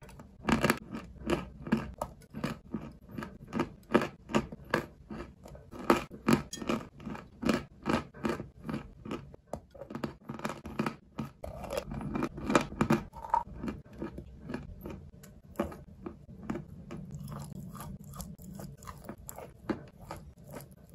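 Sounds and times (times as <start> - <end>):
chalk being chewed: 15.6 - 20.9.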